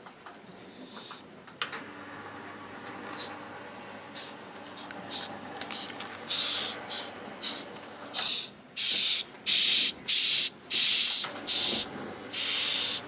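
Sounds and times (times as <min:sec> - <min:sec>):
cockroach hissing: 0:04.2 - 0:07.6, 0:08.2 - 0:11.8, 0:12.4 - 0:13.0.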